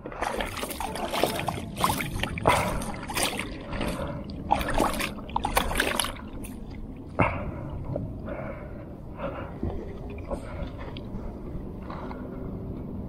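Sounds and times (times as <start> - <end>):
wet scraping and splashing: 0.0 - 6.9.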